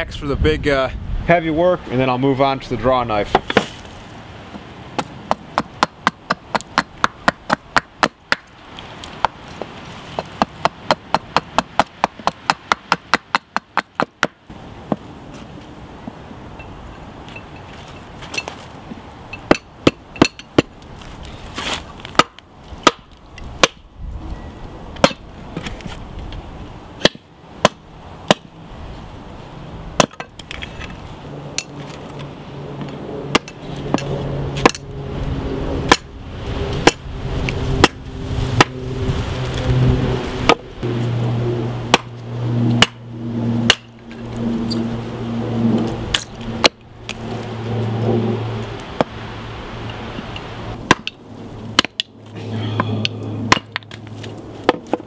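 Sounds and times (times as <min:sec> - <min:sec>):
hatchet chopping wood: 0:05.0 - 0:15.1, 0:19.4 - 0:20.8, 0:22.1 - 0:23.9, 0:25.0 - 0:25.3, 0:27.0 - 0:28.5, 0:30.0 - 0:30.3, 0:33.3 - 0:34.8, 0:35.9 - 0:36.1, 0:36.8 - 0:37.0, 0:37.8 - 0:38.0, 0:41.9 - 0:42.1, 0:42.8 - 0:43.0, 0:43.7 - 0:43.9, 0:46.1 - 0:46.8, 0:50.8 - 0:51.2, 0:51.8 - 0:52.1, 0:52.8 - 0:54.0, 0:54.6 - 0:55.0.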